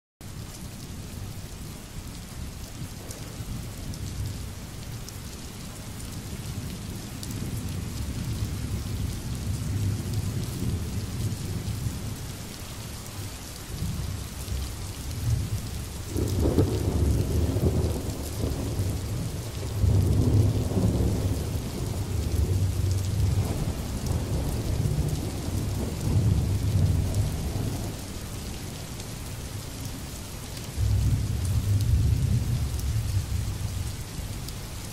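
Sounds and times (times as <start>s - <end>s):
steady rain falling: 0.2s - 34.9s
rolling thunder: 13.8s - 28.0s, 30.8s - 33.7s.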